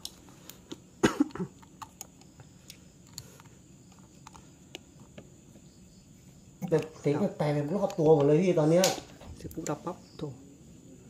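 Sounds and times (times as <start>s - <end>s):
low room hiss: 0.0s - 11.0s
person coughing: 1.0s - 1.6s.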